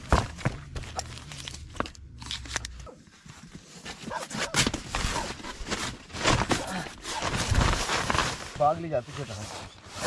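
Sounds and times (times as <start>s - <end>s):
camping gear rustling: 0.0s - 10.0s
foam mat unrolling: 3.3s - 10.0s.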